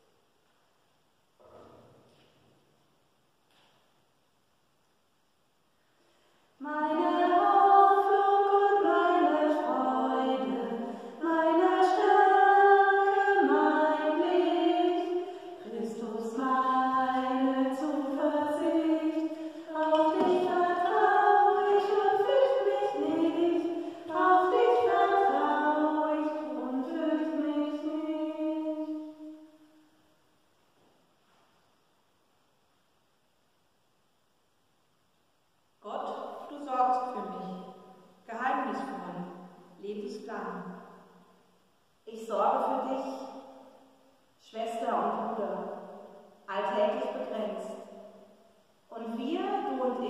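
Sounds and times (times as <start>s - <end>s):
singer breathing: 5.8s - 6.6s
woman singing a hymn: 6.6s - 29.3s, 42.1s - 43.3s, 44.5s - 45.8s, 46.5s - 47.7s, 48.9s - 50.0s.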